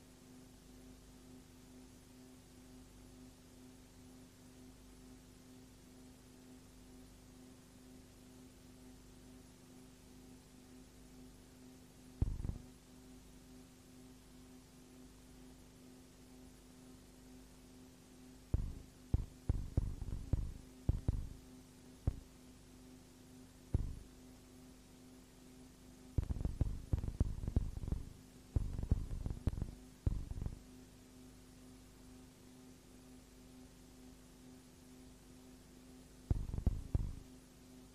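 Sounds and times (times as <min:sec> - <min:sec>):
steady electrical hum: 0:00.0 - 0:37.9
low thumps and rumbles: 0:12.2 - 0:12.7, 0:18.6 - 0:21.3, 0:23.8 - 0:24.0, 0:26.2 - 0:30.6, 0:36.3 - 0:37.2.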